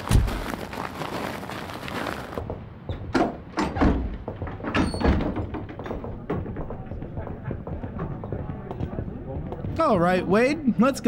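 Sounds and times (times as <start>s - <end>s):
knocks and clunks: 2.4s - 8.5s.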